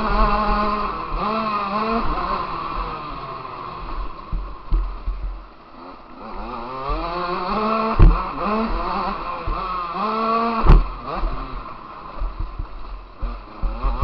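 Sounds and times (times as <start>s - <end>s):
motocross bike engine revving: 0.0s - 14.0s
loud knocks: 8.0s - 8.8s, 10.6s - 10.9s.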